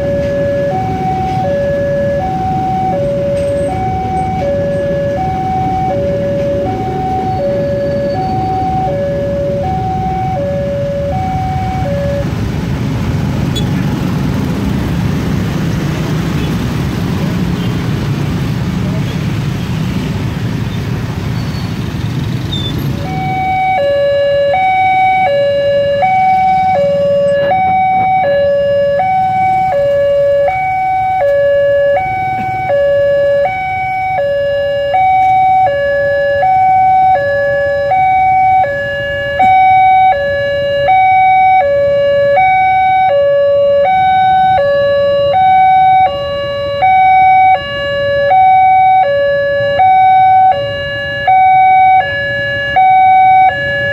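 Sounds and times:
level crossing two-tone alarm: 0.0 - 12.3, 23.1 - 53.9
road traffic: 0.0 - 53.9
motorcycle: 10.0 - 28.4.

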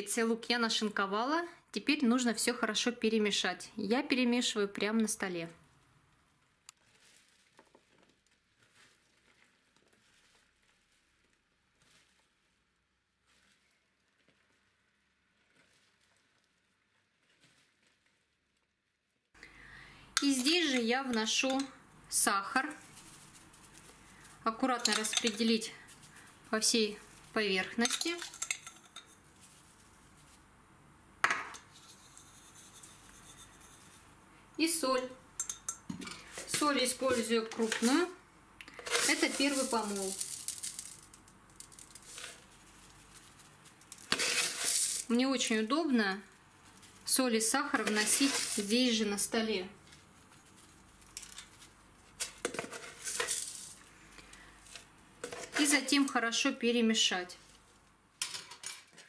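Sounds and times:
rustling of vegetables mixed by hand: 5.6 - 18.8, 20.2 - 58.2
salt sprinkled over cabbage: 6.8 - 18.3, 22.4 - 30.6, 31.6 - 34.2, 35.4 - 55.9.

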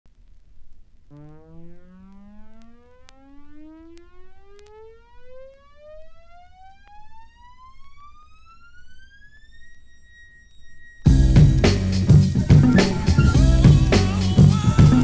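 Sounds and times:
rising electronic tone: 1.1 - 15.0
low hum: 9.6 - 15.0.

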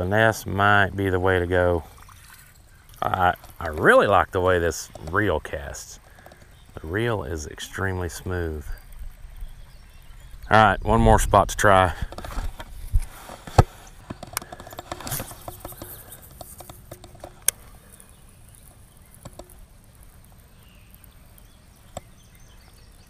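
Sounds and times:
handling clicks and knocks: 12.0 - 17.6, 19.2 - 19.6.

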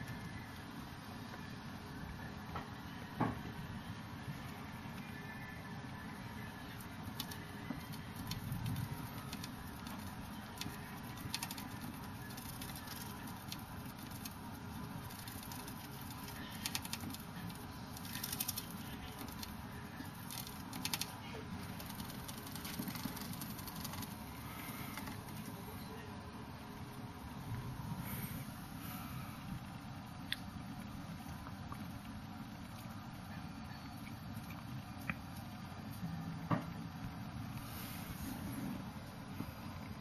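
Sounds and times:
low background noise: 0.0 - 40.0
hamster claws scratching plastic: 7.0 - 25.6.

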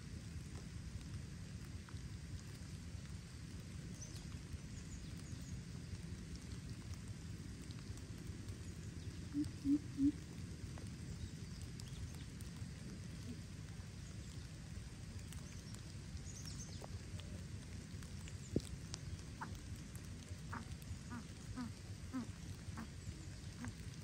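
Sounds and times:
steady rain: 0.0 - 24.0
bird deep hooting calls: 9.2 - 10.3, 20.5 - 23.8.

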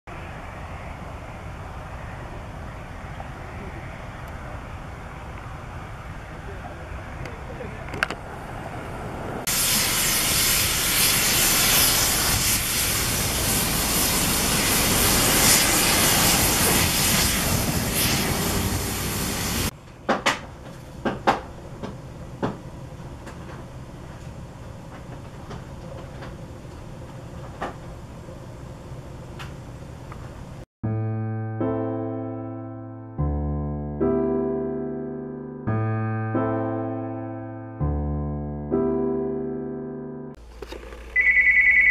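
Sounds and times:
steam venting hiss: 8.9 - 19.7.

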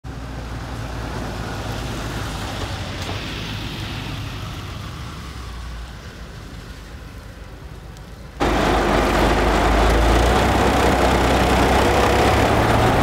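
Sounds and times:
flames rushing and crackling: 6.2 - 13.0
low hum: 8.4 - 13.0.

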